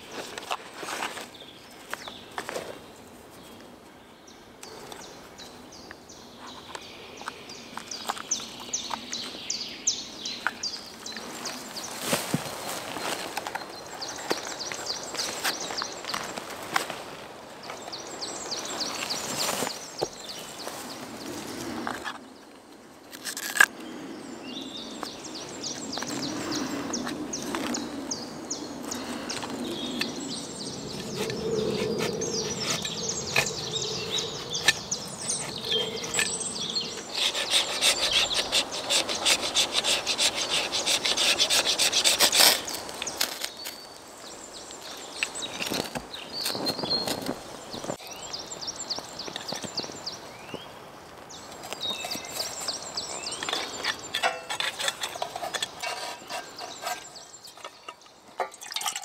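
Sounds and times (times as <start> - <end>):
knife scraping wood: 31.0 - 43.8, 51.7 - 58.0.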